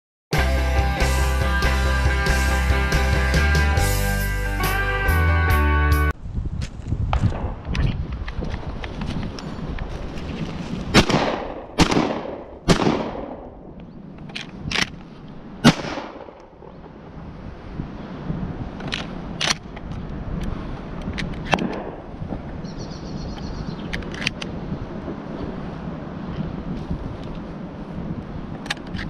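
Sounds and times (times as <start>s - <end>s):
shotgun blasts echoing: 10.9s - 13.6s, 15.6s - 16.8s, 21.5s - 22.0s.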